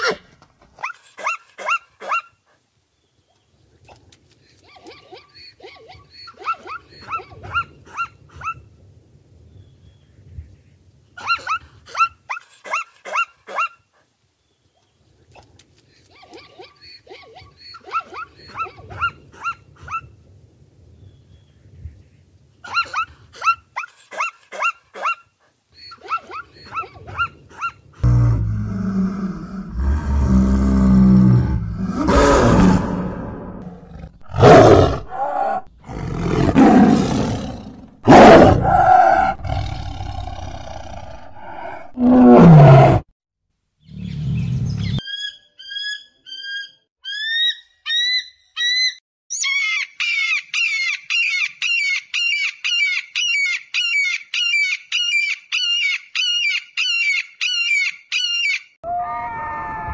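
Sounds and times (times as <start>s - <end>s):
zebras barking yelps: 22.7s - 27.8s
tiger roaring and snarling: 28.0s - 43.1s.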